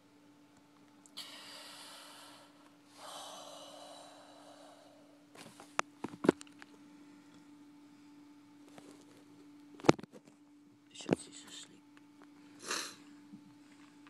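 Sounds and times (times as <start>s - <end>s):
steady low hum: 0.0s - 14.0s
person breathing heavily: 1.2s - 5.6s, 12.5s - 13.0s.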